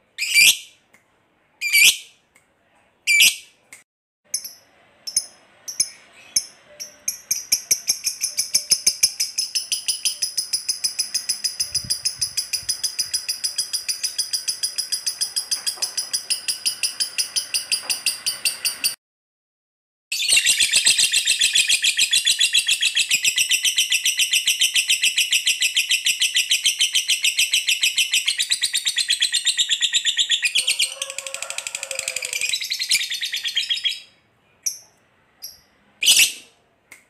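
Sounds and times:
lovebird chattering trill: 4.3 - 18.9.

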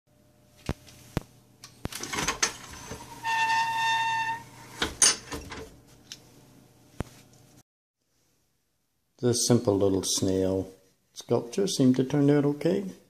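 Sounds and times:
kiln lid squealing: 2.7 - 4.6.

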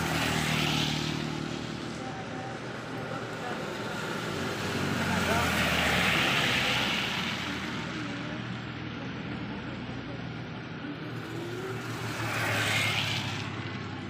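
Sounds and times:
tyres hissing on wet road: 0.0 - 1.9, 2.6 - 8.0, 11.2 - 13.7.

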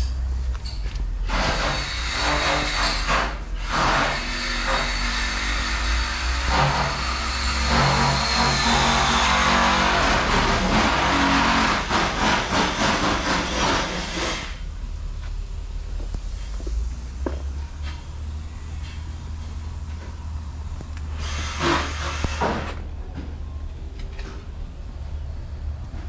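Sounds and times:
diesel engine idling: 13.9 - 26.0.

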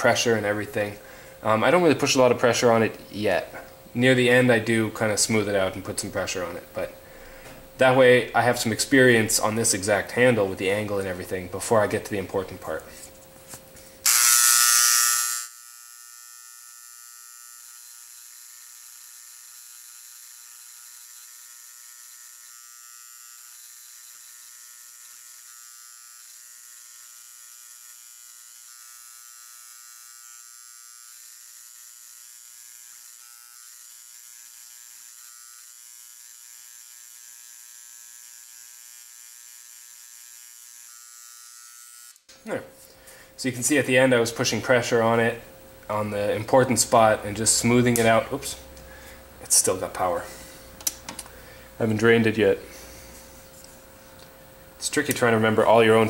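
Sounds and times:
electric engraver buzzing: 14.0 - 42.3.

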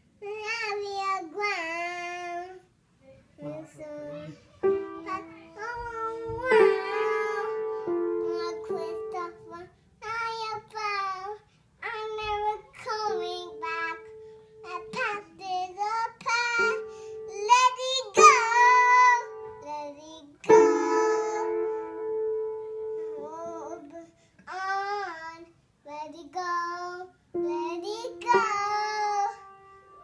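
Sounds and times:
toddler singing: 0.2 - 2.7, 3.4 - 22.2, 22.8 - 30.0
piano notes and chords: 4.6 - 9.6, 12.2 - 23.9, 27.4 - 30.0.

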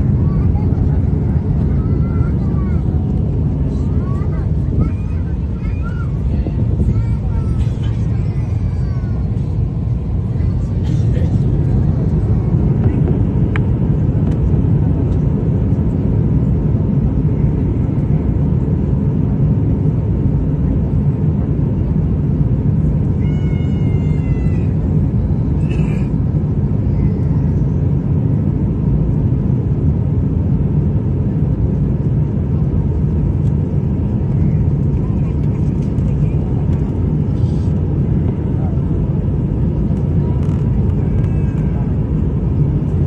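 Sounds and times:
airplane cabin rumble: 0.0 - 43.0.

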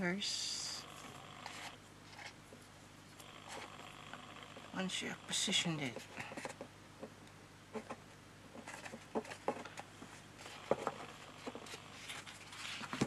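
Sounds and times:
cardstock tapping and rustling: 5.8 - 13.0.

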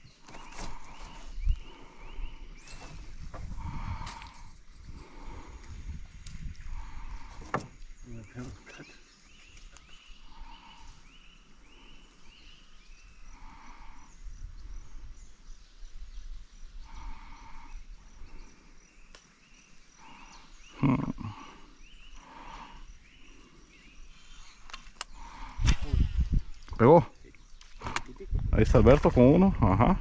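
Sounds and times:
bird chirping: 6.8 - 28.2.

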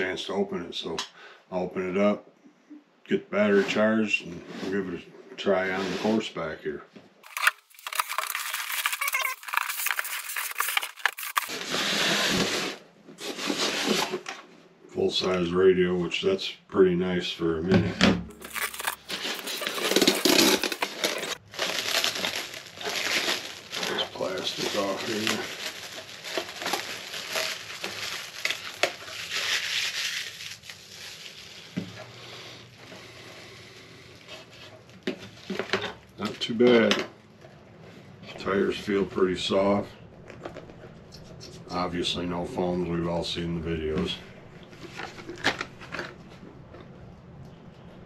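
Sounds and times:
packaging crackling and rustling: 7.2 - 12.1, 18.3 - 32.2.

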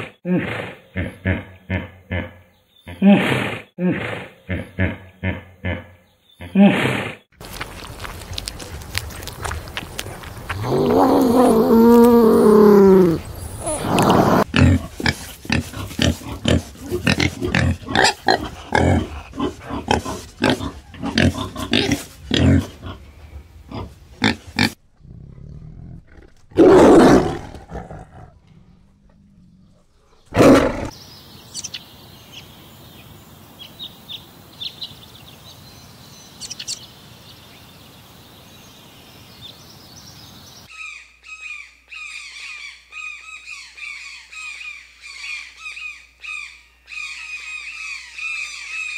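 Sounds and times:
peccaries grunting: 8.7 - 31.0
tiger roaring: 10.5 - 22.8, 24.6 - 30.9.

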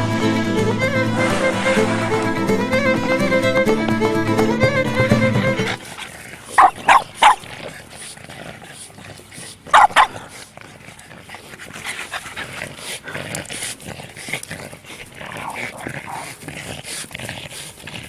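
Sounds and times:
dogs barking: 5.4 - 8.2, 9.7 - 10.4, 15.3 - 16.4.

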